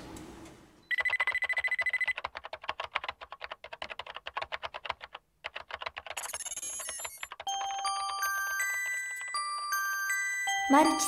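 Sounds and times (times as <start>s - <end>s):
rapid clicking: 1.0s - 7.7s.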